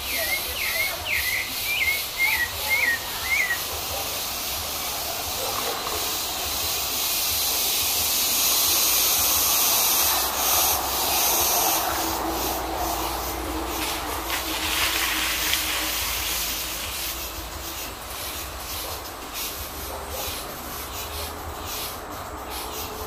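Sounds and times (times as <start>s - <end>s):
steady high hiss: 0.0s - 23.0s.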